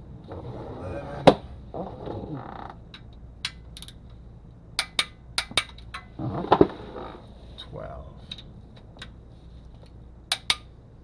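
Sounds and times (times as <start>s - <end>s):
creak: 0.3s - 2.9s, 6.0s - 7.3s.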